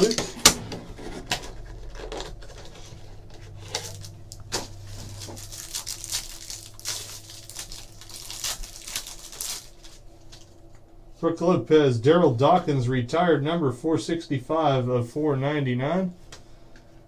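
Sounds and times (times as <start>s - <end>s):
paper pack ripping: 0.0s - 10.5s
plastic wrap crinkling: 1.2s - 10.6s.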